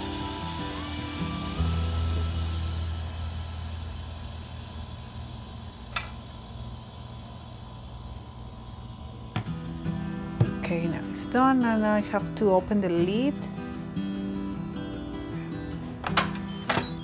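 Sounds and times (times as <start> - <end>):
steam valve hissing: 0.0 - 8.7.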